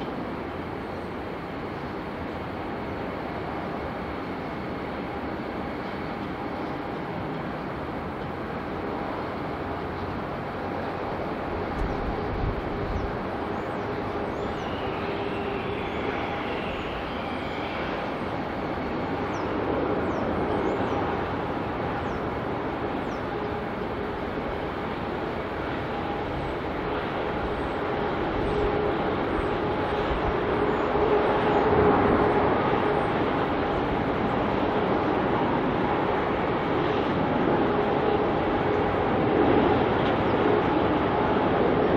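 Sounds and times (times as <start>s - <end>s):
distant jet engine rumble: 0.0s - 41.9s
wind on microphone: 8.3s - 41.9s.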